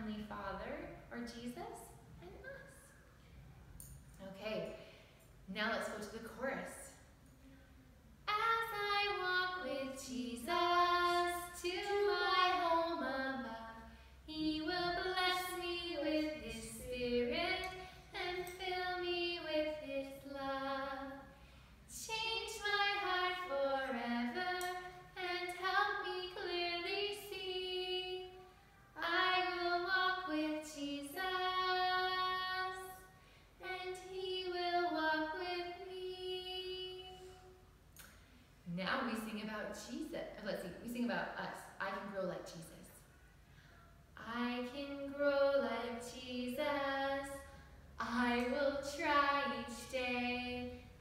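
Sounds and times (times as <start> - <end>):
woman singing: 8.3 - 21.2, 21.9 - 28.4, 33.6 - 37.4, 44.2 - 50.9.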